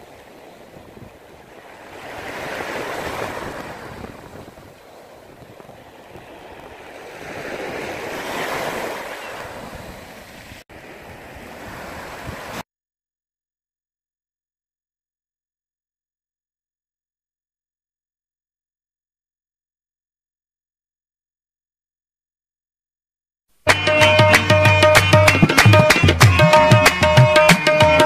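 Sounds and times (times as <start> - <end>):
ocean waves washing in: 0.0 - 12.6.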